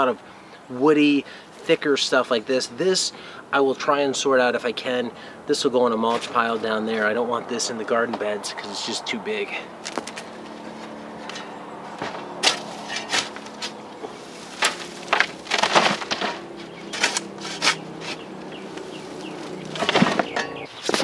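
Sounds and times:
hand tool scraping bedding: 5.9 - 7.2, 9.8 - 21.0
steady buzzing hum: 6.7 - 20.7.

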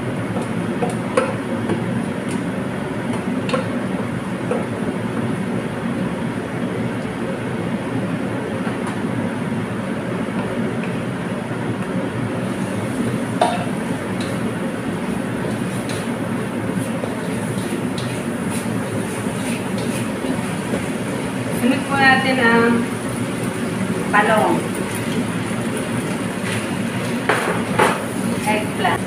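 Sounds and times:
rice frying in wok: 0.0 - 29.0.

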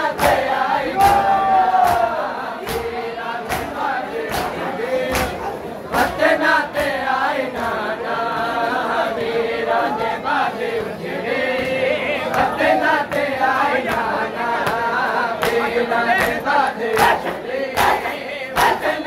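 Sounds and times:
crowd of men chanting: 0.0 - 19.0
hand slaps on chests: 0.1 - 6.2, 13.1 - 19.0.

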